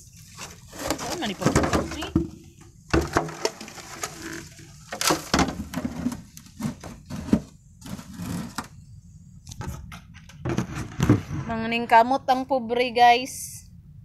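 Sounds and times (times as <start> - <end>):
rustling and crackling: 0.0 - 8.8.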